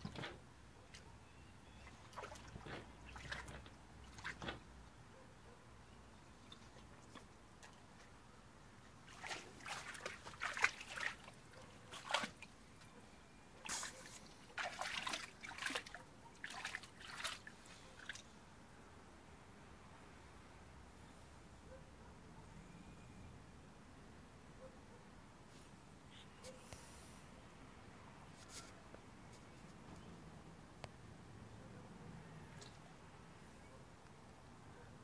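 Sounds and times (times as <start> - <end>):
dog splashing in water: 1.9 - 4.6, 9.1 - 12.5, 13.6 - 18.2.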